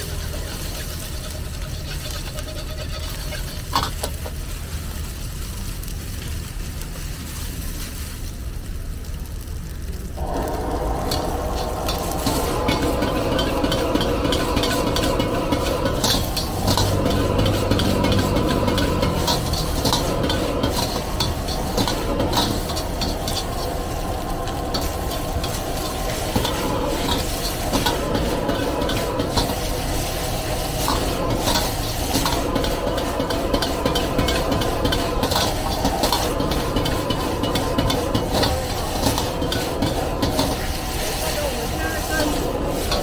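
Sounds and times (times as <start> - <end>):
metal ladle scraping a wok: 0.0 - 4.3, 10.2 - 43.0
food sizzling: 0.0 - 43.0
gas burner roaring: 0.0 - 43.0.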